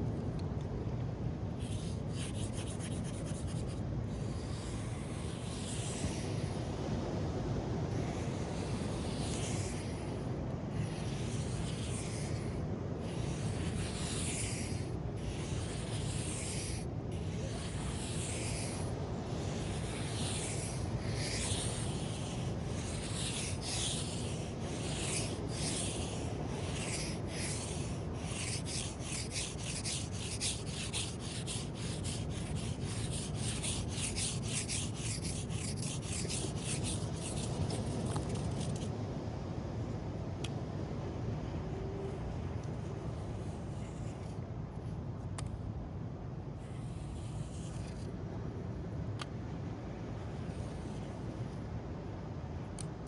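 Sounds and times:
low surf noise: 0:00.0 - 0:53.0
sand being scratched: 0:01.6 - 0:06.8, 0:07.6 - 0:38.9, 0:43.2 - 0:44.4, 0:46.6 - 0:48.1, 0:50.4 - 0:51.2.

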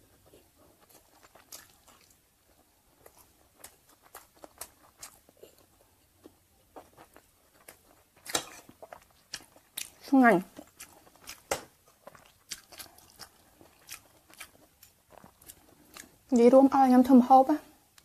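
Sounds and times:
chewing mouth clicks and smacks: 0:00.8 - 0:02.2, 0:03.0 - 0:05.4, 0:10.6 - 0:16.1.

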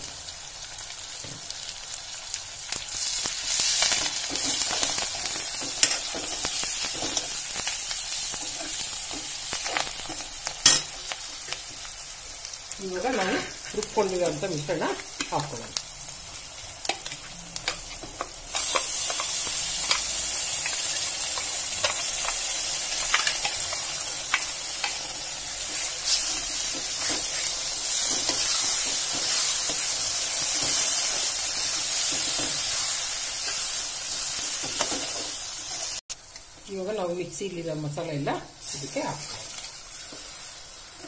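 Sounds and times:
food sizzling in hot oil: 0:00.0 - 0:41.0
steel spoon scraping a pan: 0:16.8 - 0:22.4, 0:24.8 - 0:36.0.

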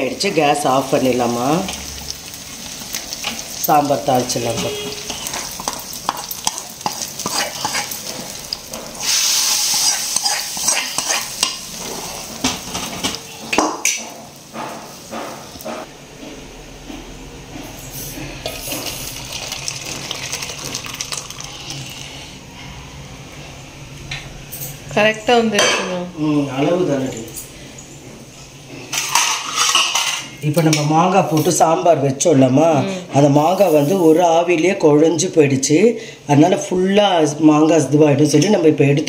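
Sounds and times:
oil and seeds sizzling: 0:00.0 - 0:15.9, 0:17.7 - 0:22.8, 0:33.2 - 0:35.5.

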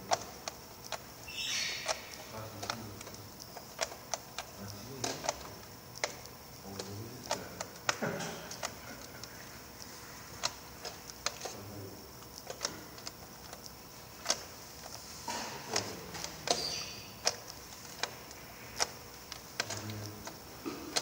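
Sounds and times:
clicks and taps on plastic trays: 0:01.8 - 0:09.3.

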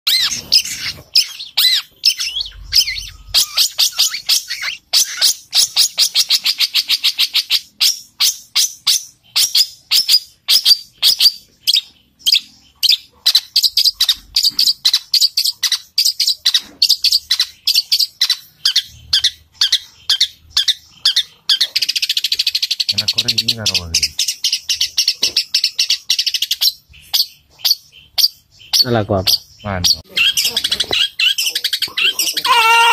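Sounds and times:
bird chirping rapidly: 0:00.0 - 0:32.9.

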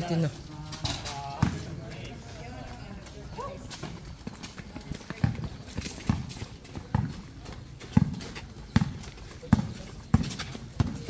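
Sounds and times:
basketball bouncing on hard court: 0:04.8 - 0:11.0.

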